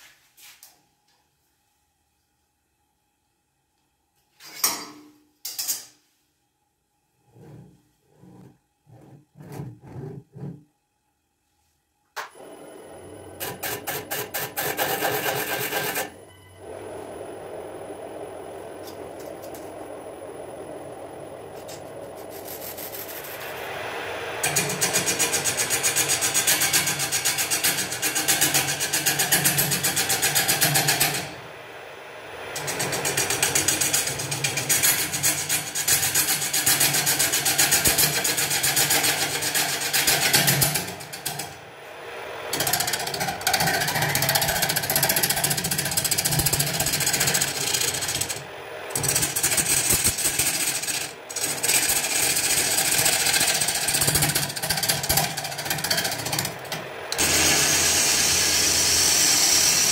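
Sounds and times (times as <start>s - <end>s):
gouge cutting wood on lathe: 13.4s - 16.1s, 42.5s - 59.9s.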